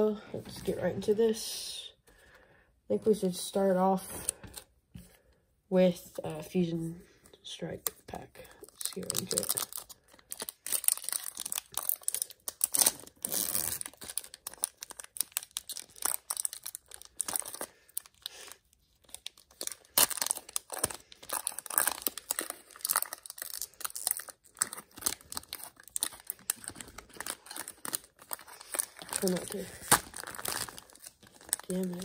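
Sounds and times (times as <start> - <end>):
foil wrapper crinkling and tearing: 7.8 - 32.0.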